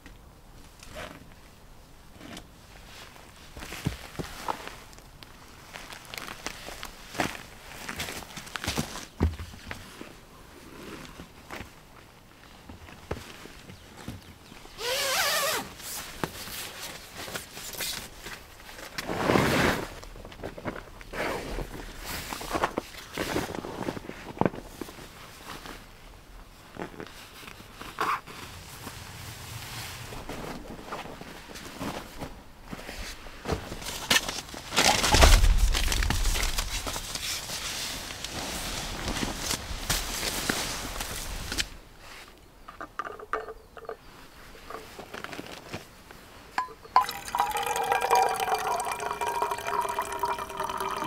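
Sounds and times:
rustling and crinkling of gear: 0.6s - 29.6s, 30.2s - 46.6s
rustle of handled gear: 44.1s - 46.4s.

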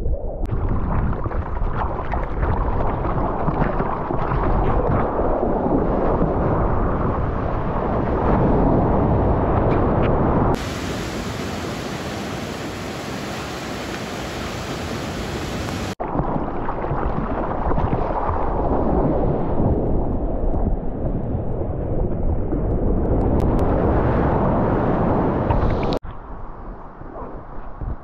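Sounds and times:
rushing whitewater: 10.6s - 16.0s
surf hiss: 10.6s - 16.0s.

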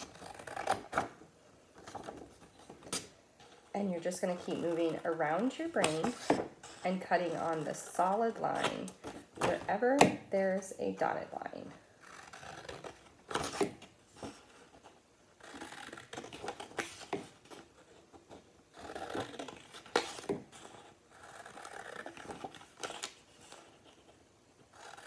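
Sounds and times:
scissors cutting paper: 0.0s - 1.1s, 4.0s - 10.1s, 18.7s - 24.0s, 24.7s - 25.0s.

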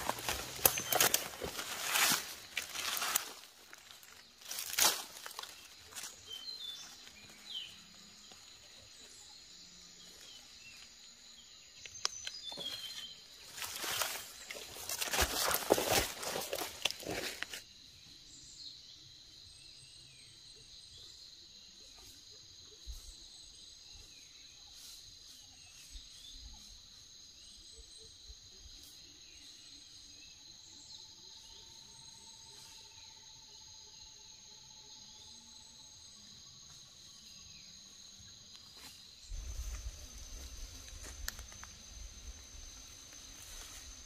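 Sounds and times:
footsteps in dry leaves: 0.0s - 7.6s, 12.5s - 17.6s
insects droning: 0.0s - 44.0s.

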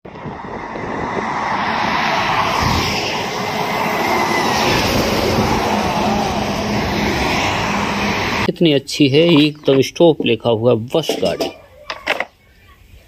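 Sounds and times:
bus passing on highway: 0.0s - 8.5s.

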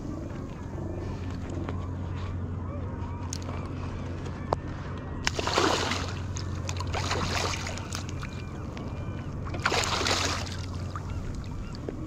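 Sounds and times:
salmon splashing at the surface: 5.3s - 6.2s, 6.8s - 8.1s, 9.6s - 10.6s.

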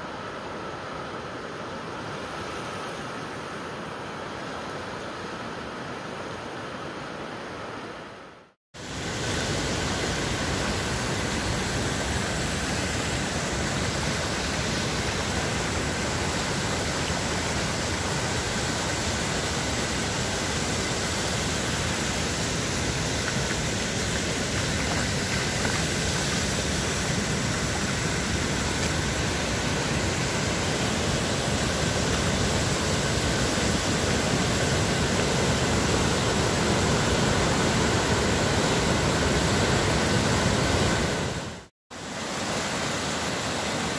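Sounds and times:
floodwater rushing: 8.8s - 43.9s.

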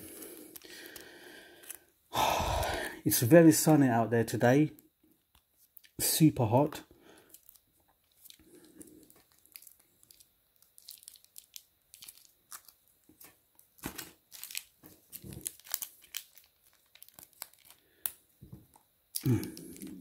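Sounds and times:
plastic sachet crinkling and tearing: 0.5s - 1.0s, 7.2s - 18.2s, 19.1s - 20.0s
paper wrapping rustling: 9.0s - 17.8s.

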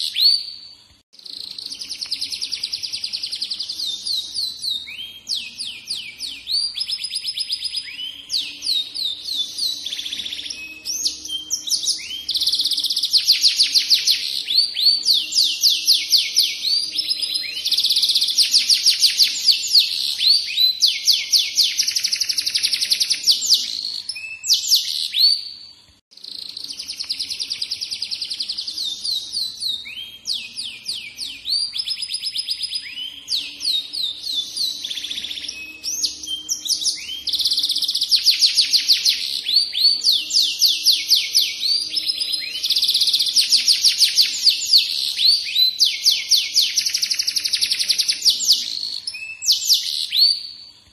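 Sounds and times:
canary singing trills: 0.0s - 50.9s.

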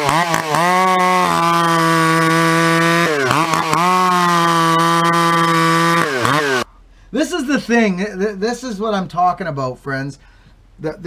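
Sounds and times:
chainsaw ripping a log: 0.0s - 6.6s.

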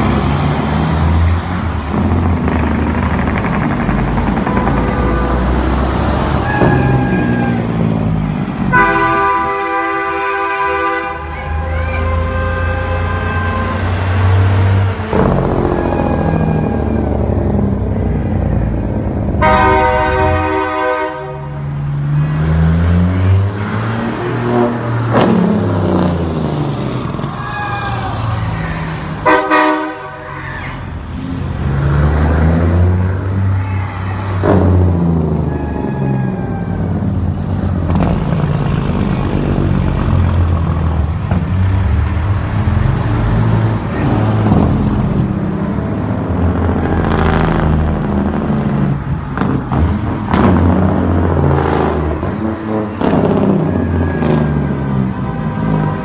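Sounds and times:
truck engines rumbling: 0.0s - 56.0s
truck air horn blasts: 4.4s - 5.8s, 8.7s - 14.2s, 15.2s - 16.7s, 19.4s - 21.7s, 29.2s - 30.4s.

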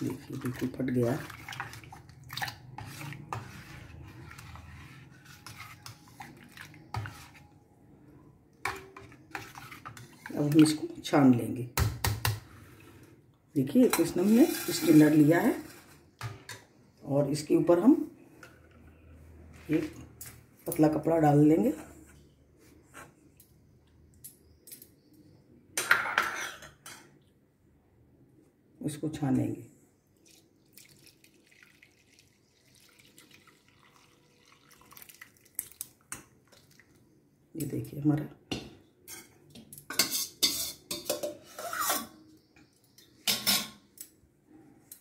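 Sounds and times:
spoon scraping steel bowl: 0.0s - 7.6s, 8.6s - 10.9s, 13.8s - 16.6s, 39.1s - 42.4s
stainless steel kitchenware clinking: 38.5s - 42.2s.

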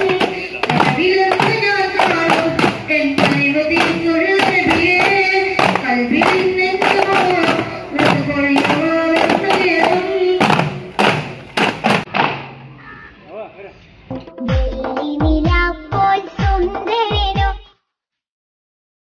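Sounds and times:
group singing in unison: 0.0s - 10.7s
frame drums beating: 0.0s - 12.1s.

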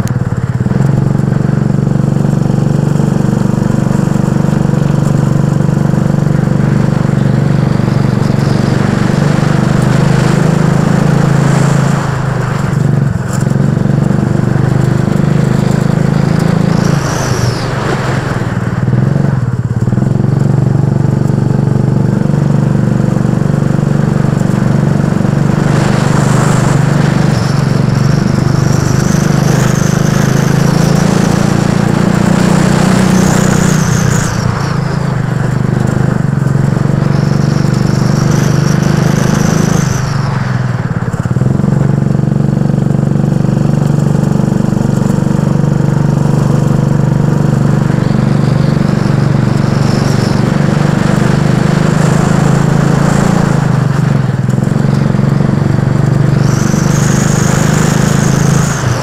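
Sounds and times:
go-kart engine running hard: 0.0s - 59.0s.

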